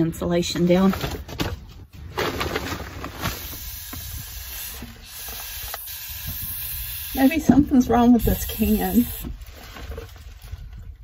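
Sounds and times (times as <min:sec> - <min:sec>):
faint hissing from spray can: 0:03.7 - 0:07.4.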